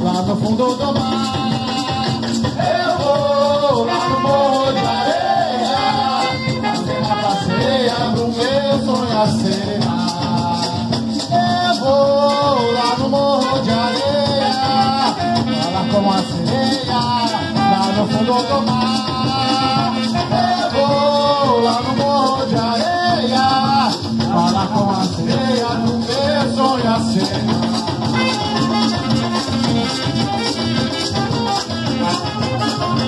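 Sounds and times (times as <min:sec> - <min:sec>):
drums: 0:00.0 - 0:33.0
maracas shaking: 0:00.0 - 0:33.0
bending melody line: 0:26.3 - 0:33.0.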